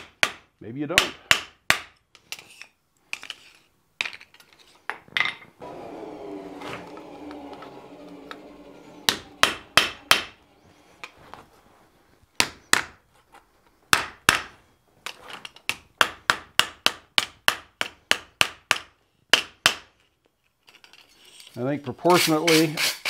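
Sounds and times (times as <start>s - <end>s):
hammer striking hot steel: 9.1s - 10.4s.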